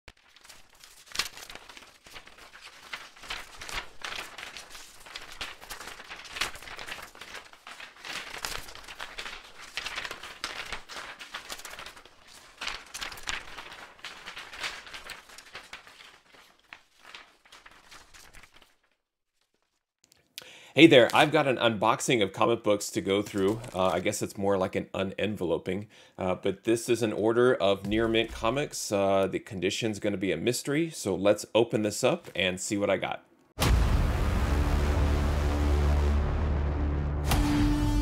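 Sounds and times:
packaging crinkling and rustling: 0.1 - 19.9, 23.2 - 24.2.

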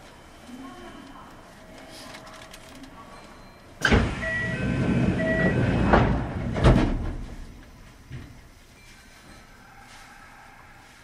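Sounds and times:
short beeps: 3.2 - 5.7
train door and air noise with knocks: 3.8 - 8.4.

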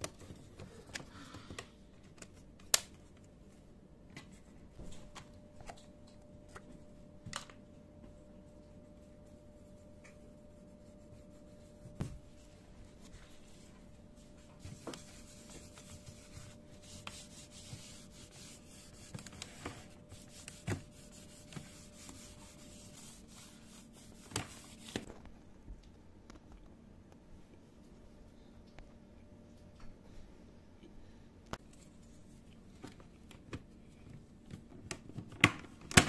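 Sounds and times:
cloth scrubbing plastic: 10.7 - 25.1.

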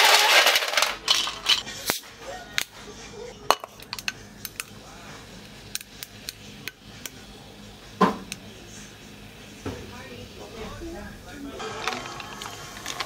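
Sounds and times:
ice cubes clinking into cup: 0.0 - 1.6, 11.6 - 13.0
cola pouring: 11.6 - 13.0.

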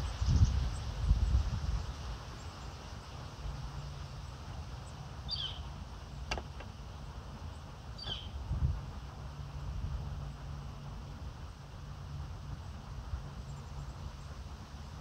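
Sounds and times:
steady low hum: 0.0 - 15.0
wind rumble on microphone: 0.0 - 15.0
bird chirping: 4.8 - 5.7, 7.5 - 8.4.

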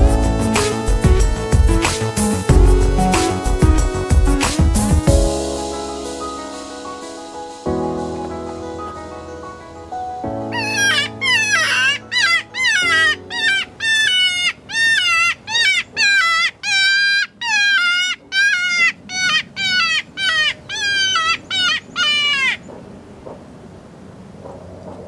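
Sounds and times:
predator call distress squalls: 10.5 - 22.6.

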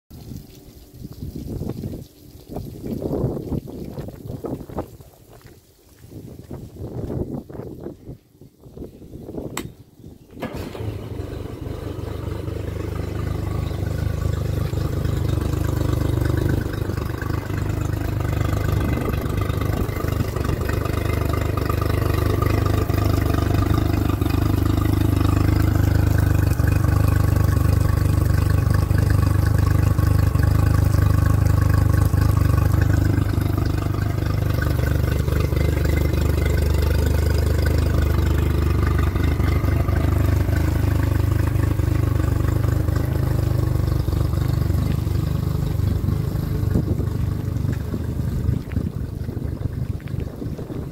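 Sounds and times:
outboard motor running: 10.4 - 50.9.

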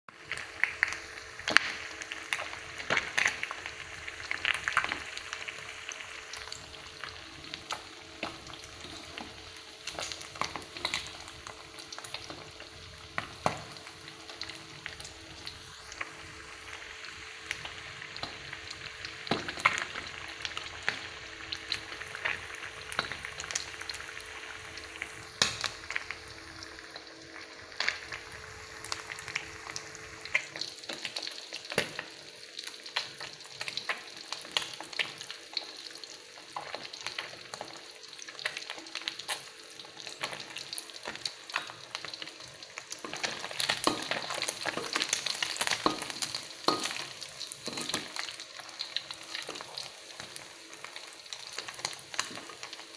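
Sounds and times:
fish sizzling in hot oil: 0.1 - 52.9.

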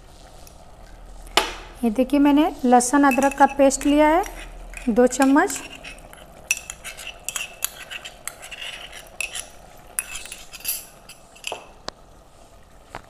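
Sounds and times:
metal spoon clinking against bowl: 3.0 - 11.6.

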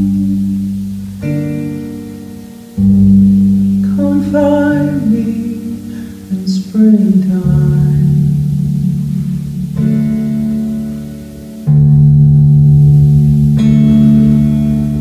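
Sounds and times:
acoustic guitar chords: 0.0 - 15.0
woman singing: 3.8 - 10.6.

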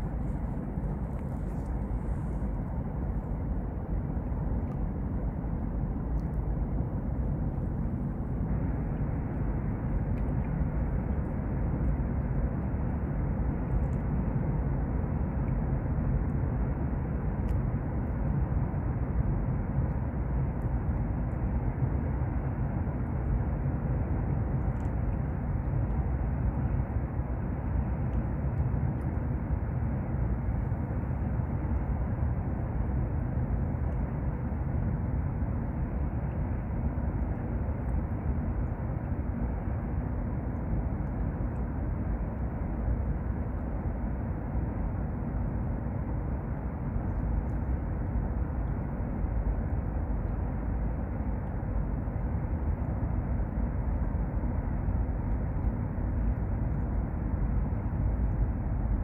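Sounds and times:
low outdoor rumble: 0.0 - 59.0.

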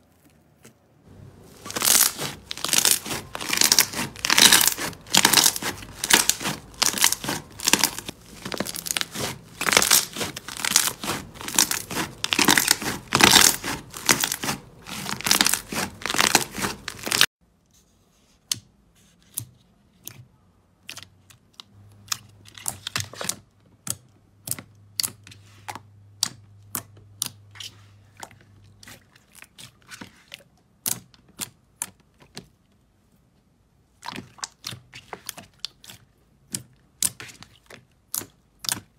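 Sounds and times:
slime crackling when kneaded: 0.0 - 17.3.

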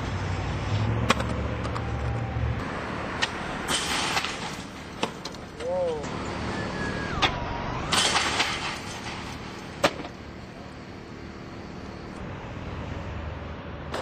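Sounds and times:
skateboard wheels rolling on pavement: 0.0 - 7.9.

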